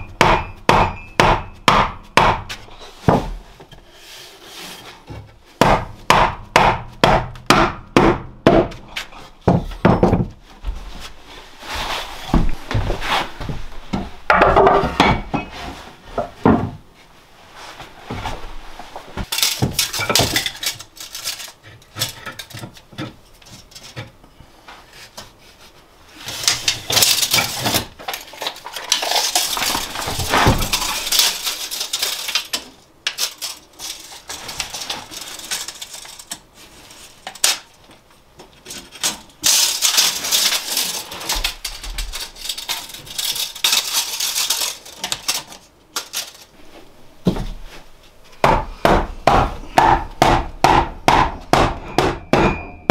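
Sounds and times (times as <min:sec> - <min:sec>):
hard objects clattering: 0:19.2 - 0:24.2, 0:26.4 - 0:37.6.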